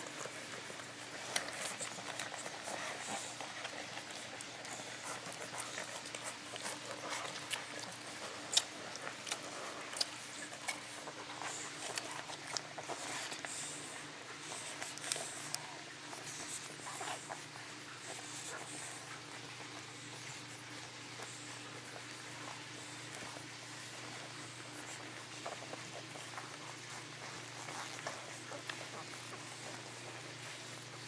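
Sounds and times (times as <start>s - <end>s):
low steady hum: 0.0s - 31.0s
puppies sucking and smacking: 0.0s - 31.0s.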